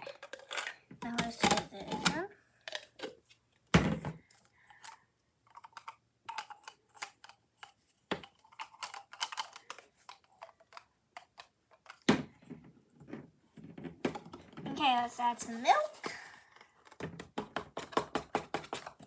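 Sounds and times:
toy pieces rattling in plastic cup: 0.0s - 2.0s, 4.7s - 12.1s.

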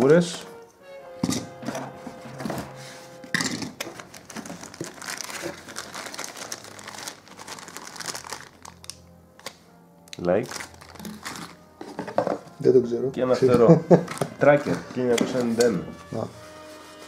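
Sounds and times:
plastic bags crinkling: 3.4s - 9.5s, 10.4s - 11.6s, 13.9s - 15.6s.

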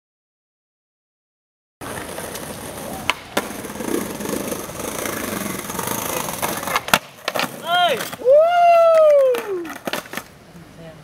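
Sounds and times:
skateboard clacks: 1.8s - 10.4s
skateboard rolling and scraping: 1.8s - 10.4s.

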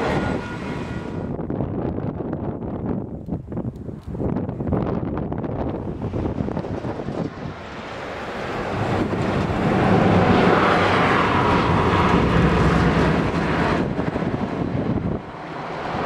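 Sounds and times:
heavy vehicle passing: 5.8s - 16.0s.

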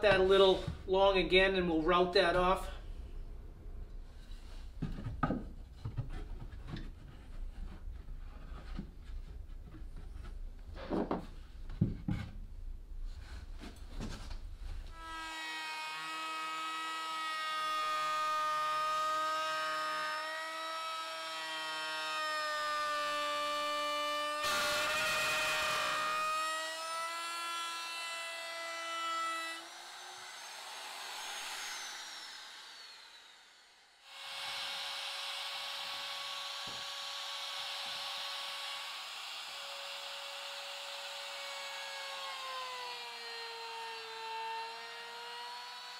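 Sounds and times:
electric router whining: 14.9s - 45.9s.

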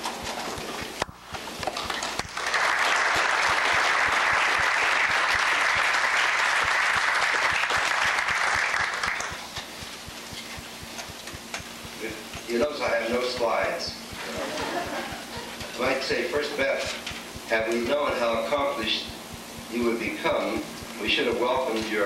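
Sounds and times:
audience applauding: 1.6s - 9.5s.

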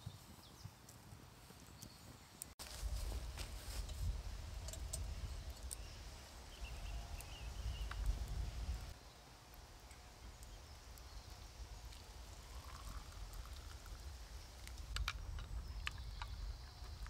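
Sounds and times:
metal camping pot clinking: 3.7s - 5.8s
coffee pouring into cup: 11.9s - 14.1s.

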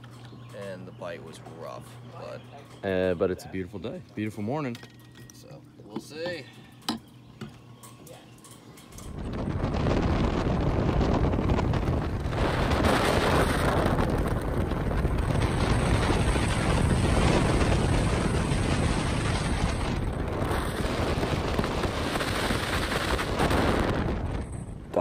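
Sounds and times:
wind rushing over microphone: 8.9s - 25.0s.

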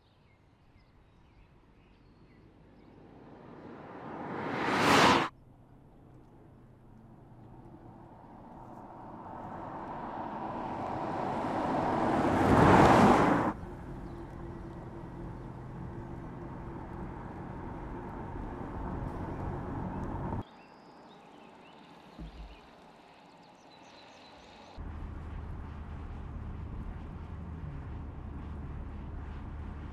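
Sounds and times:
car passing tyre noise: 2.4s - 5.3s, 6.3s - 20.4s, 24.2s - 29.9s.

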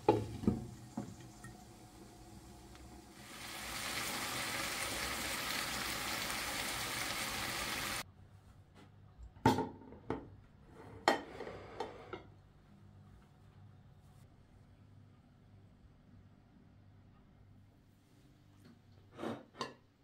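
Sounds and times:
vegetables sizzling in a pan: 0.0s - 8.0s.

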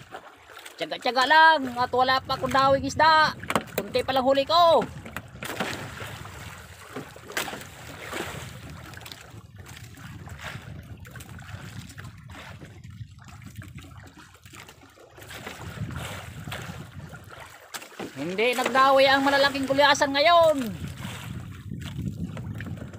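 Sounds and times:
water lapping against boat hull: 0.0s - 22.9s
wind rumbling on microphone: 1.3s - 22.9s
splashy swishes: 4.8s - 22.0s.

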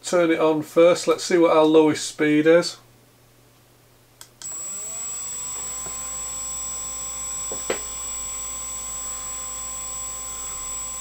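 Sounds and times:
spindle motor whirring with high whine: 4.4s - 11.0s.

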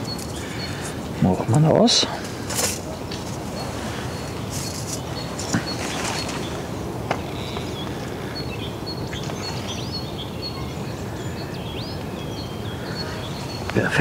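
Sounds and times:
outdoor background rush: 0.0s - 14.0s
small birds chirping: 0.0s - 14.0s
light rustling: 2.2s - 8.2s.

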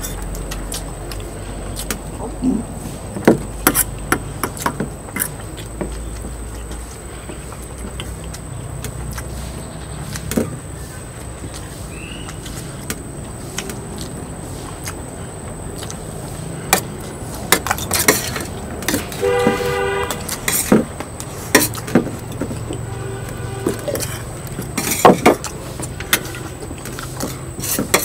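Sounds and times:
traffic rumble: 0.0s - 28.0s
vehicle horn: 19.1s - 20.7s, 22.7s - 24.4s, 25.9s - 26.6s.

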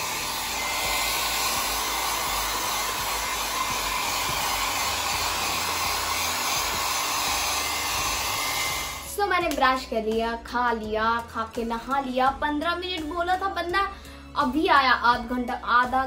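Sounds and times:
hair dryer running: 0.0s - 9.6s.

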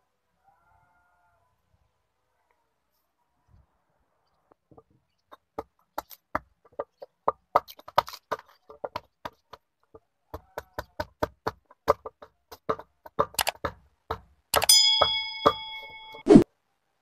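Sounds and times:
hatchet chopping wood: 10.3s - 16.0s.

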